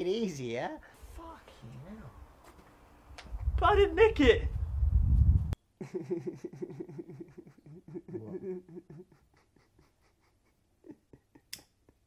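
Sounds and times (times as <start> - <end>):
man laughing: 5.8 - 12.0.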